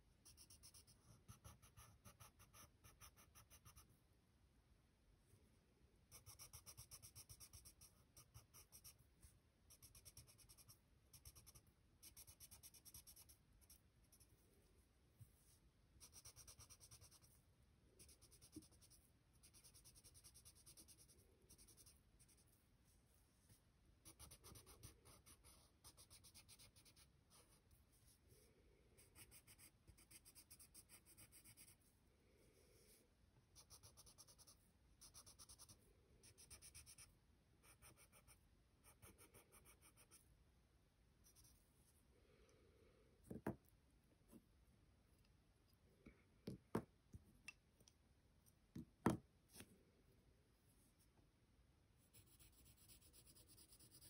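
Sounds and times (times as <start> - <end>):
pencil scratching on paper: 0.2 - 3.9, 6.1 - 14.4, 16.0 - 17.4, 18.0 - 22.6, 24.0 - 27.7, 29.0 - 31.8, 33.6 - 40.2, 52.0 - 54.0.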